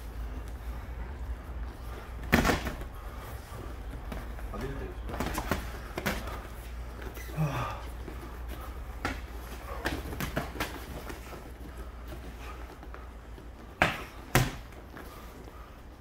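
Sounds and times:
boxing glove punches: 0:13.7 - 0:14.8.

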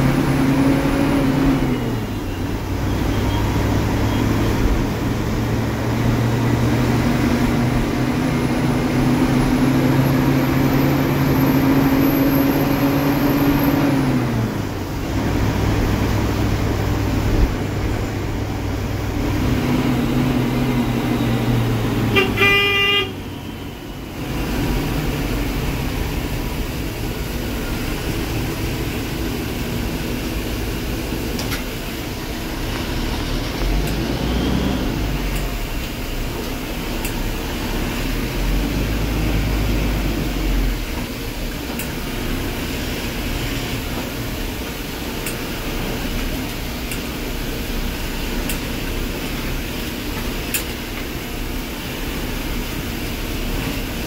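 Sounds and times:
bus engine and road noise: 0:00.0 - 0:54.0
horn toot: 0:22.0 - 0:23.2.

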